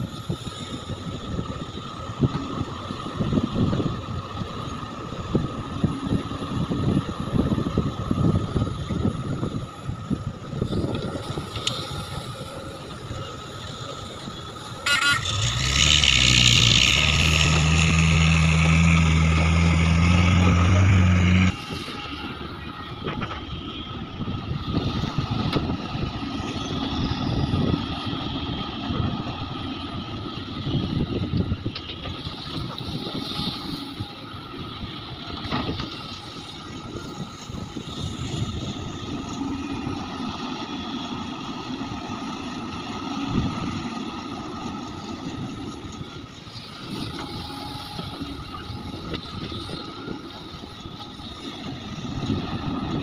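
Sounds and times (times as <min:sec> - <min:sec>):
excavator engine rumble: 0:00.0 - 0:53.0
loud engine drone with hiss: 0:14.8 - 0:22.8.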